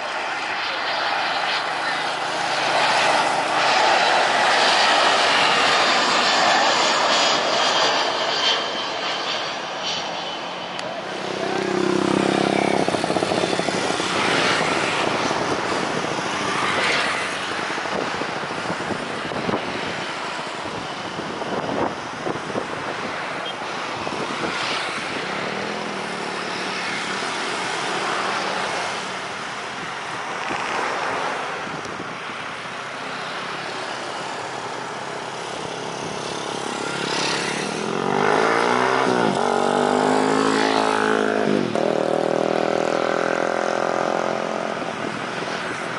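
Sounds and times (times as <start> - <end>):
cars and motorbikes passing: 0.0 - 8.3, 10.4 - 45.9
loud engine passing close: 0.0 - 21.6, 34.6 - 45.9.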